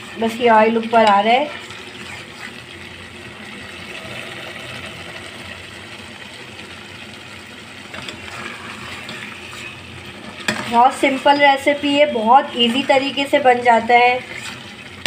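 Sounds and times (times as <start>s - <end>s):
curry sizzling in a pot: 0.0s - 15.0s
ladle stirring: 7.9s - 12.0s, 12.6s - 15.0s.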